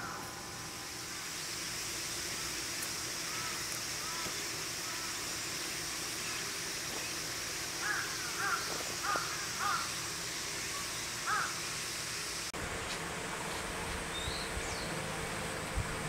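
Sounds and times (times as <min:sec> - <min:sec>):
crow cawing: 0:00.0 - 0:00.5, 0:03.2 - 0:05.2, 0:07.8 - 0:10.0, 0:11.2 - 0:11.6.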